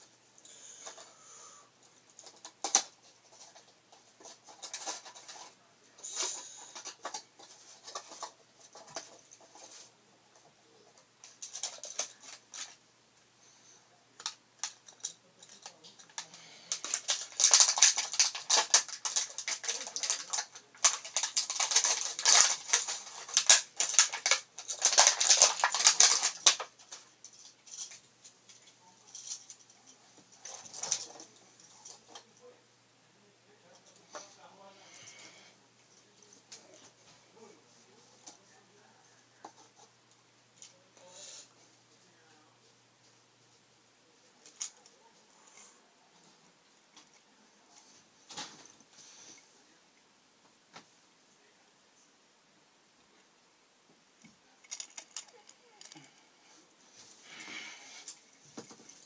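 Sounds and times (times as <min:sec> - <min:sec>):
plastic toy bottles clicking and rattling: 0:02.1 - 0:09.8, 0:11.2 - 0:12.8, 0:14.2 - 0:29.7, 0:30.4 - 0:32.2, 0:44.4 - 0:44.9, 0:54.6 - 0:56.1.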